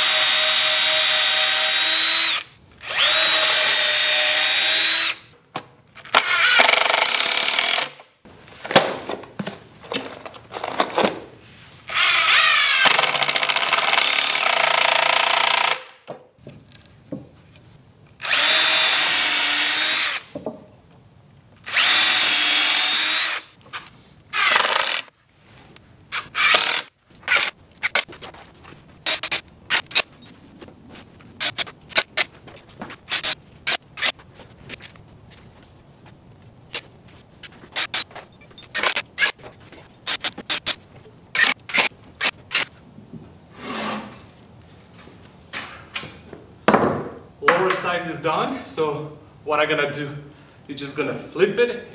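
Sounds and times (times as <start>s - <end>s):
cordless drill driving screws: 0.0s - 5.3s, 6.0s - 8.0s, 11.9s - 15.9s, 18.2s - 20.3s, 21.6s - 25.1s, 26.1s - 28.1s, 33.1s - 34.2s.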